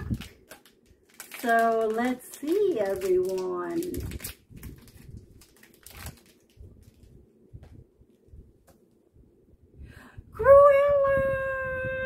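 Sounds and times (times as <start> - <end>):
packaging rustling: 0.0 - 7.2.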